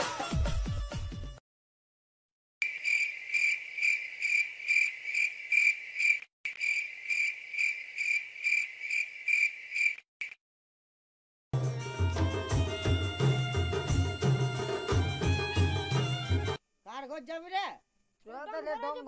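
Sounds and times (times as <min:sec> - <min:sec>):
cricket chirring: 0:02.6 - 0:10.4.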